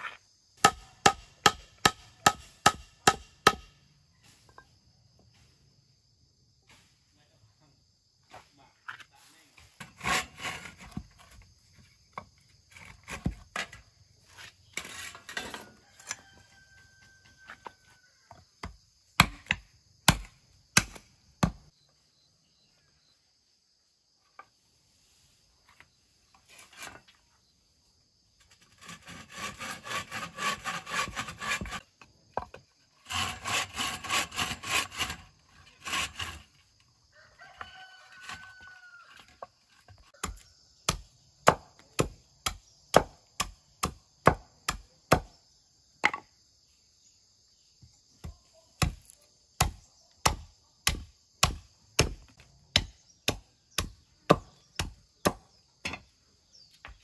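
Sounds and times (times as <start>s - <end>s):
bow saw cutting wood: 9.8s - 11.0s, 28.5s - 31.8s, 33.0s - 36.7s
rooster crowing: 15.4s - 18.3s, 37.0s - 39.5s.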